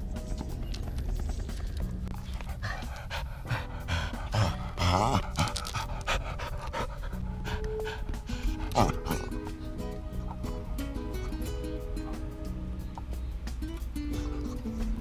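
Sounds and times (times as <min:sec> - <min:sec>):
dog panting and sniffing: 0:01.5 - 0:11.5, 0:14.1 - 0:15.0.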